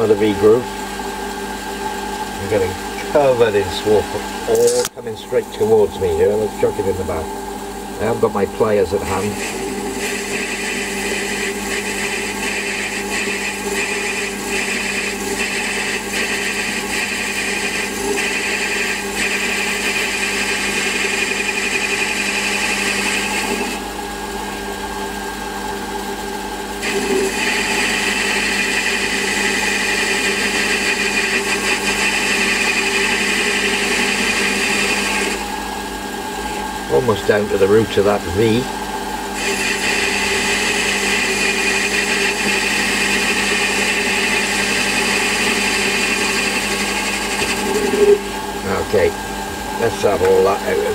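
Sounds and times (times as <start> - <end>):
lathe motor hum: 0.0 - 50.9
lathe cutting hiss: 9.0 - 23.8, 26.8 - 35.7, 39.3 - 50.9.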